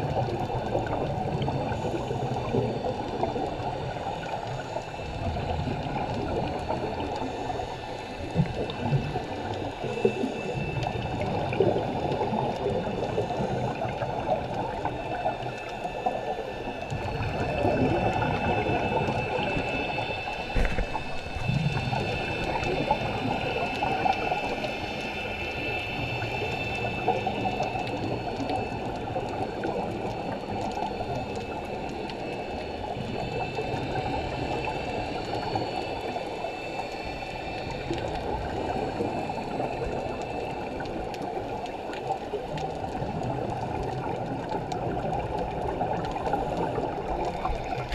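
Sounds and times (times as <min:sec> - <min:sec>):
faint high whine: 0:00.1 - 0:47.9
underwater regulator bubbles: 0:08.3 - 0:36.3, 0:37.8 - 0:47.9.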